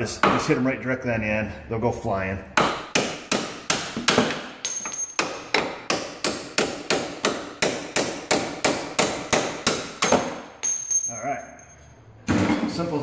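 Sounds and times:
hammer striking metal bolt: 2.6 - 11.0.

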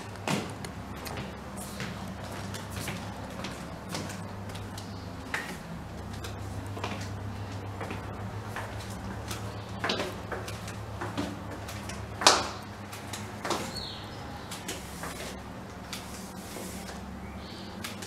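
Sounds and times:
footsteps on carpeted stairs: 0.0 - 13.9
steady low hum: 0.0 - 18.0.

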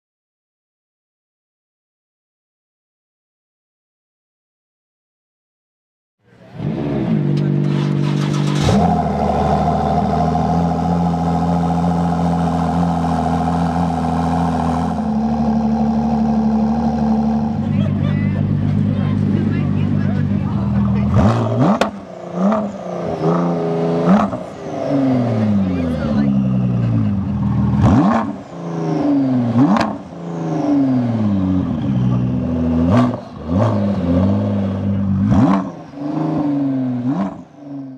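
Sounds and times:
car engine idling: 6.2 - 37.9.

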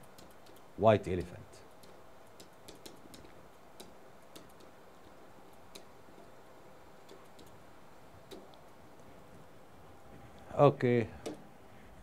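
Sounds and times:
faint room hum: 0.0 - 12.0
pen tapping on whiteboard: 1.2 - 4.8.

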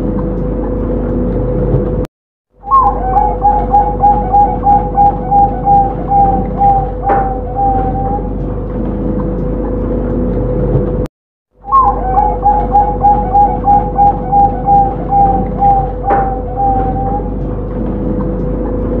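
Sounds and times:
dove cooing: 2.6 - 8.4, 11.6 - 17.6.

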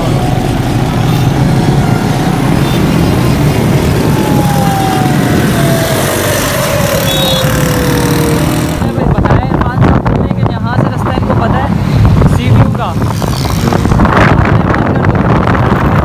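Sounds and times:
motorcycle engine: 0.0 - 9.5, 12.8 - 14.3
wind rushing on microphone: 0.0 - 16.0.

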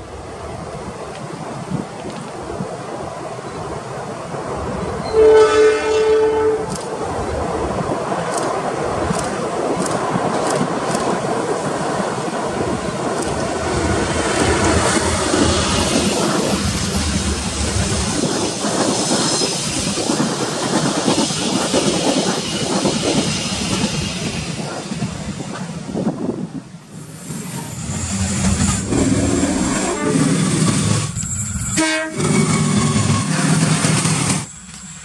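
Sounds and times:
train wheels clattering on rails: 7.9 - 26.3, 27.8 - 35.0.

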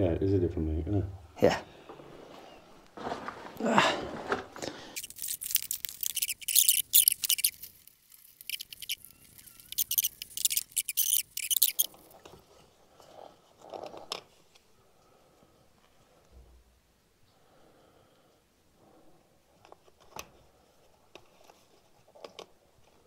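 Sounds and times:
soft fumbling: 1.7 - 6.1
plastic rustling and scraping: 2.0 - 14.7.

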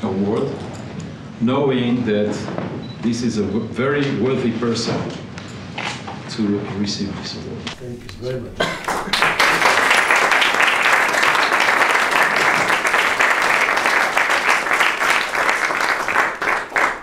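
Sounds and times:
audience applauding: 7.9 - 17.0.

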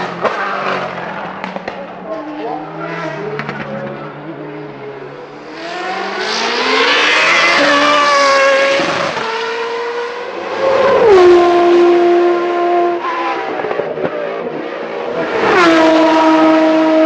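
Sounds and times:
race car engine accelerating: 0.0 - 17.0.

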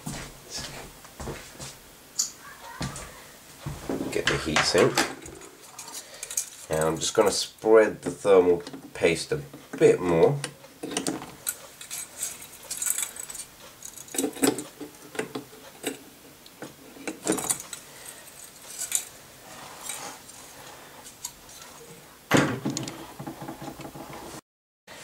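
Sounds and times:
metal heatsink clinking: 4.6 - 7.3, 10.8 - 16.1, 16.9 - 19.2.

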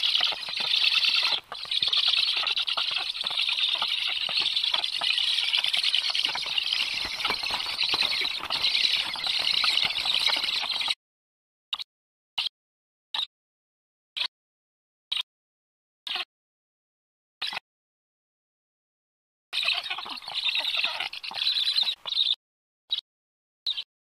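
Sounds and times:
wing flapping and scuffling: 0.0 - 10.9
nestlings rasping begging calls: 0.0 - 11.0, 19.6 - 22.4.

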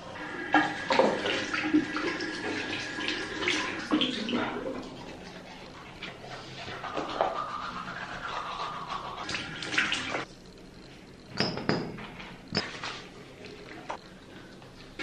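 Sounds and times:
water running into sink: 0.2 - 5.1.

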